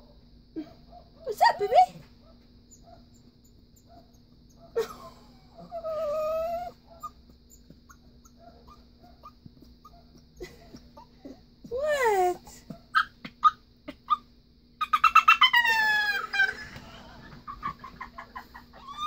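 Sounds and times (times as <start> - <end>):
puppy whining cry: 3.8 - 16.6, 18.7 - 19.0.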